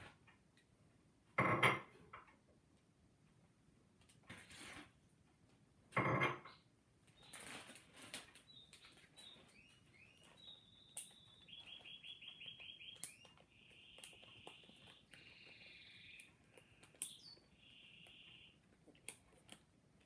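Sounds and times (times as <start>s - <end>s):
plastic rustling: 7.2s - 10.4s
songbird singing: 8.3s - 18.8s.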